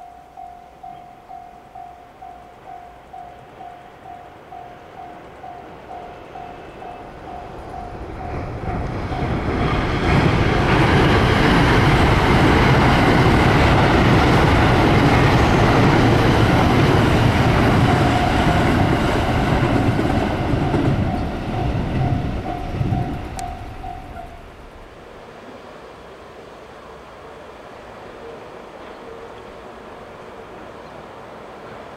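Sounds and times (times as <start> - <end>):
crossing warning bell ringing: 0.0 - 24.9
train passing with wheel clatter: 0.0 - 31.9.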